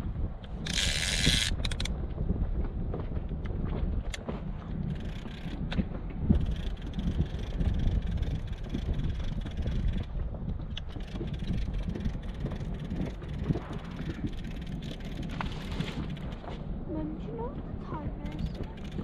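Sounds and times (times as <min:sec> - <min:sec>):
wind buffeting microphone: 0:00.0 - 0:19.0
water against boat hull: 0:00.4 - 0:19.0.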